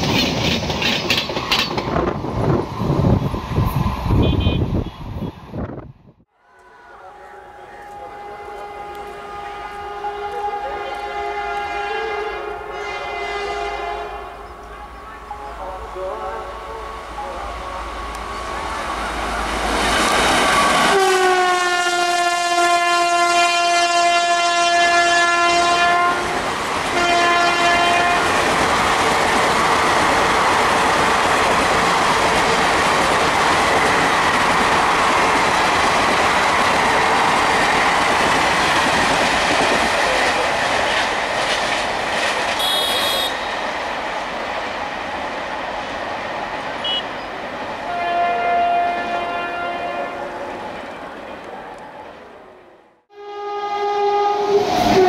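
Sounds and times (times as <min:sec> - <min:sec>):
train coaches rushing past: 0:00.0 - 0:05.5, 0:06.4 - 0:24.1, 0:24.8 - 0:52.7
locomotive horn blast: 0:04.1 - 0:05.1, 0:06.4 - 0:17.0, 0:20.8 - 0:28.4, 0:42.6 - 0:43.6, 0:46.8 - 0:47.1, 0:47.8 - 0:50.5, 0:53.1 - 0:55.0.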